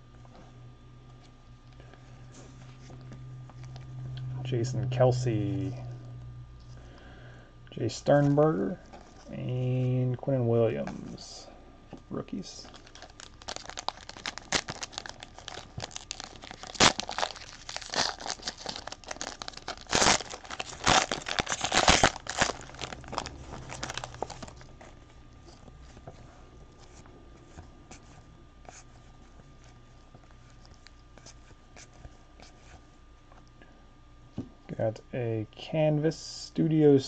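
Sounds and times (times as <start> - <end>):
plastic wrapper tearing and crinkling: 12.6 - 26.2
cards rustling: 12.6 - 32.8.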